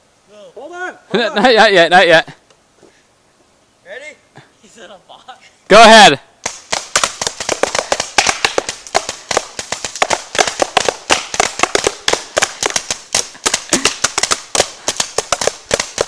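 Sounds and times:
paintball markers firing: 6.4s - 16.0s.

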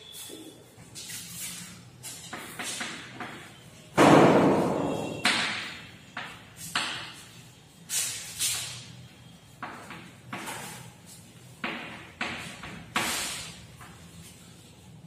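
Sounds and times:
chalk strikes on chalkboard: 4.4s - 7.4s, 11.6s - 14.0s.

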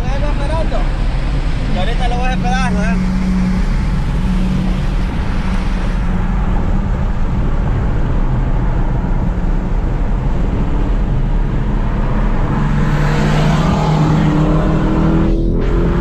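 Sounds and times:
car engine accelerating: 0.0s - 16.0s.

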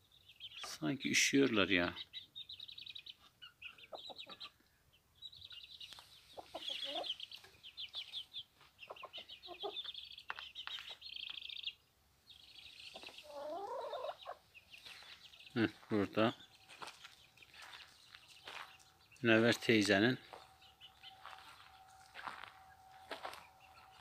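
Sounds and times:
chicks chirping: 0.0s - 24.0s
hen clucking: 3.1s - 4.7s, 5.4s - 10.1s, 12.8s - 17.8s.

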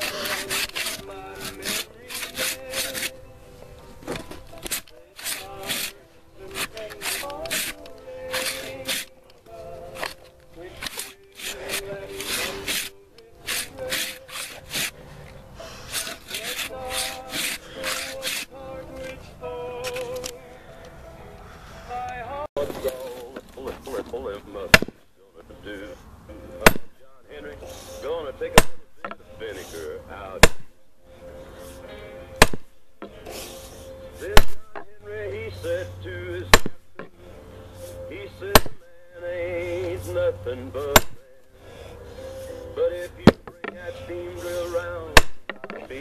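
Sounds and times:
handsaw sawing through log: 0.0s - 3.2s, 4.5s - 9.2s, 9.9s - 15.0s, 15.6s - 19.1s, 31.6s - 34.6s, 42.1s - 46.0s
old recorded music with singing: 0.0s - 46.0s
sledgehammer striking log: 24.7s - 25.0s, 26.6s - 26.9s, 28.5s - 28.9s, 30.4s - 30.7s, 32.4s - 33.2s, 34.3s - 34.9s, 36.5s - 36.8s, 38.4s - 38.8s, 40.8s - 41.2s, 43.2s - 43.6s, 45.1s - 45.8s.

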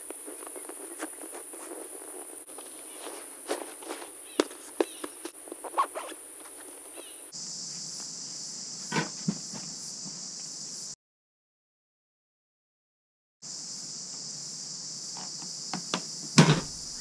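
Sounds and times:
canvas bag rustling: 0.0s - 7.3s.

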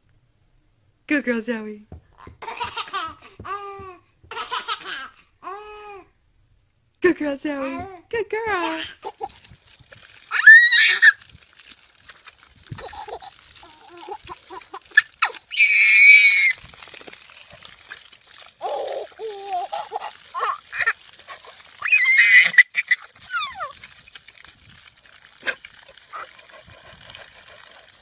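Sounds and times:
baby shrieking with laughter: 10.3s - 11.2s, 12.9s - 16.6s, 18.6s - 23.8s.

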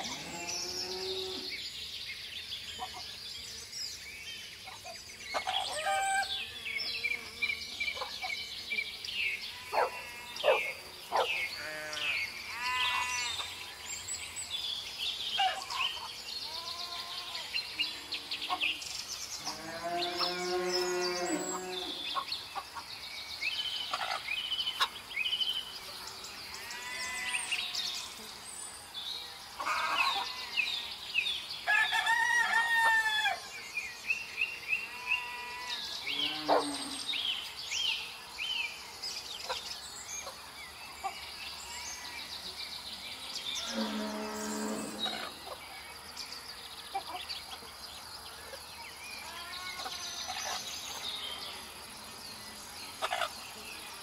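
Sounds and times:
small birds chirping: 0.0s - 31.7s, 33.6s - 54.0s
roosters crowing: 5.4s - 6.4s, 19.4s - 22.0s, 31.7s - 33.4s, 43.6s - 45.4s.

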